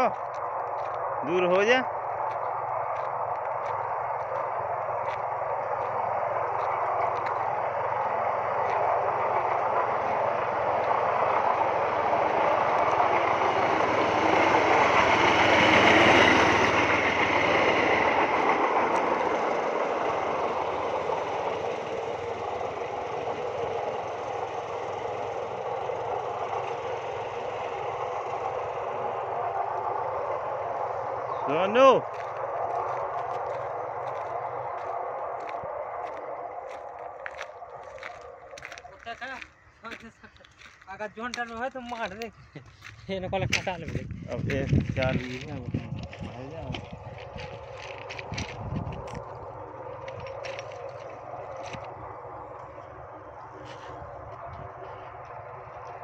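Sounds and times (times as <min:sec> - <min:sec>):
train wheels on rails: 0:00.0 - 0:56.0.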